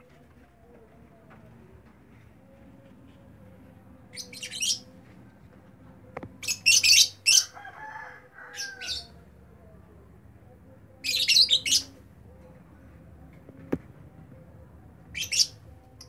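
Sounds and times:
lovebirds chirping and squawking: 4.2 - 4.9, 6.4 - 7.6, 8.5 - 9.2, 11.0 - 12.5, 15.1 - 16.0.

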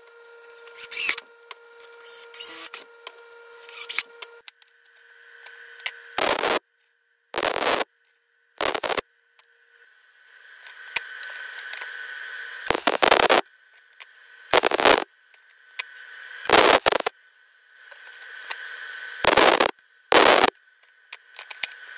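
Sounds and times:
steady high hum: 0.0 - 21.9
crackling welding arc: 6.2 - 6.6, 7.4 - 7.9, 8.6 - 9.0, 12.6 - 13.4, 14.5 - 15.1, 16.4 - 17.1, 19.2 - 20.6.

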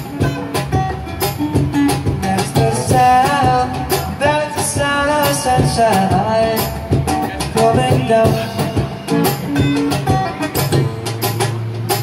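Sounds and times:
drum kit beat: 0.0 - 12.0
strummed acoustic guitar: 0.0 - 12.0
man singing: 1.9 - 10.3.

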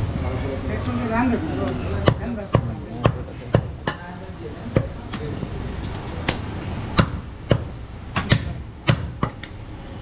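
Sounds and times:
cleaver chopping on wooden block: 6.3 - 9.6.

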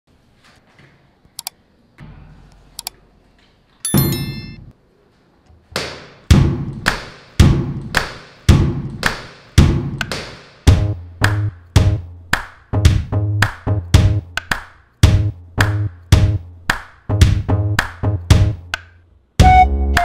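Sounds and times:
steady beat of hard hits: 5.9 - 16.5, 17.1 - 18.8.

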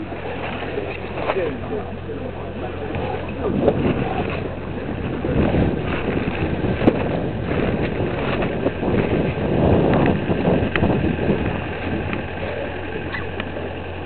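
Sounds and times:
engine droning: 0.0 - 14.0
wind buffeting microphone: 0.0 - 14.0.

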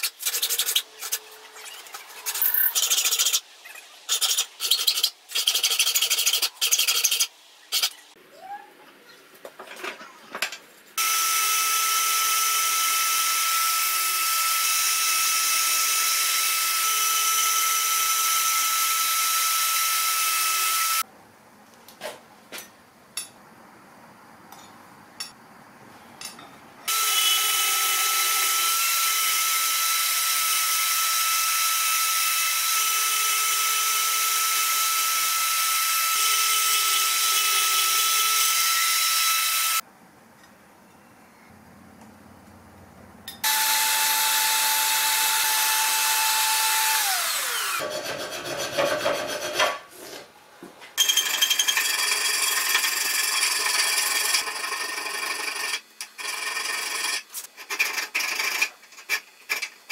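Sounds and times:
bandsaw cutting metal: 26.9 - 39.8, 43.4 - 49.8, 51.0 - 59.8.

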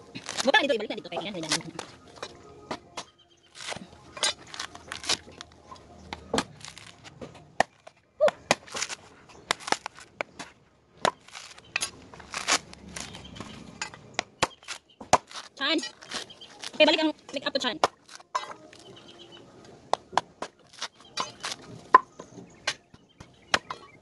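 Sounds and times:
fibres tearing: 0.0 - 0.7, 3.5 - 5.6, 6.4 - 7.1, 8.6 - 10.2, 11.2 - 13.2, 14.6 - 16.9, 18.0 - 18.9, 20.6 - 21.6
machete chopping coconut husk: 0.1 - 0.7, 3.0 - 5.4, 7.6 - 13.2, 14.2 - 16.8, 19.9 - 21.6.

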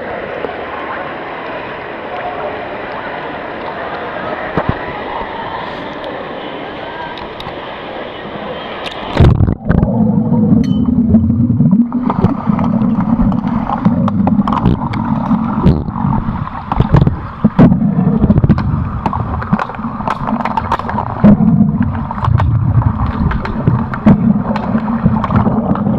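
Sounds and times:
pool hall noise: 0.0 - 25.9
muffled underwater rumble: 8.3 - 25.9
sticks and puck clicking underwater: 10.6 - 25.9.

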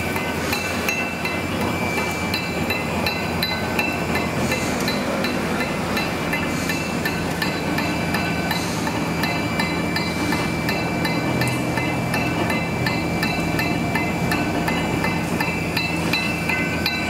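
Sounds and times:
rapid regular machine clicking: 0.0 - 17.0.

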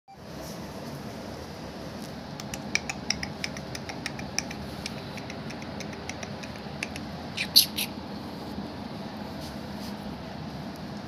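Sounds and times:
steady background hum: 0.1 - 11.0
dog claws ticking on concrete: 2.5 - 7.0.

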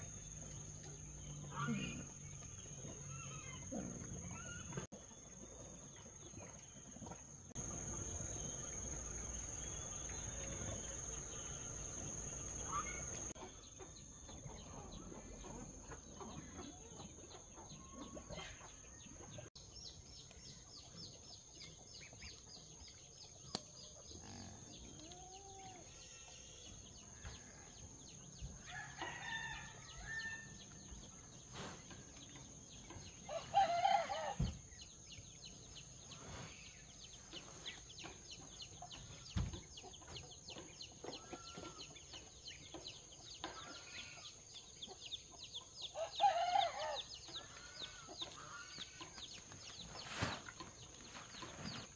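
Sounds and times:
rooster crowing: 33.3 - 34.5, 46.0 - 47.1.

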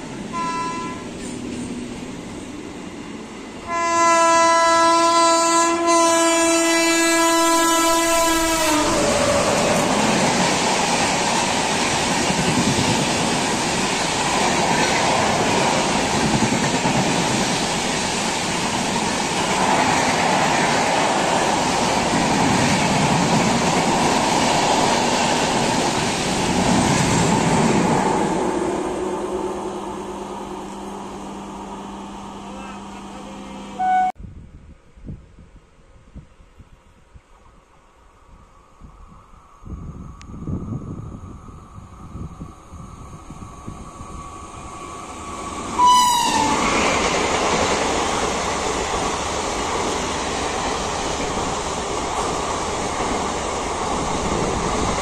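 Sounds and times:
locomotive horn blast: 0.3 - 1.1, 3.6 - 9.1, 32.7 - 34.2, 45.8 - 46.6
train wheel clatter: 9.0 - 28.2.

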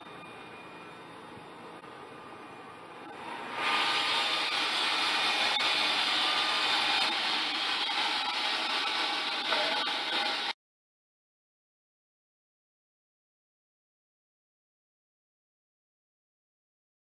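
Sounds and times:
saw cutting through timber: 3.1 - 10.6.

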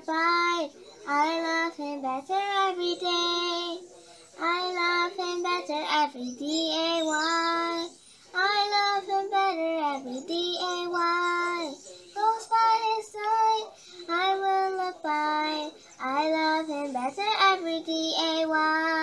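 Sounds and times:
girl singing gospel solo: 4.4 - 19.0.

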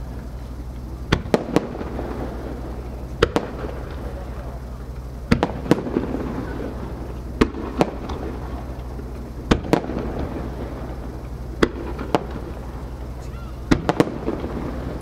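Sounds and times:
firework shells bursting: 0.0 - 15.0
low rumble: 0.0 - 15.0.

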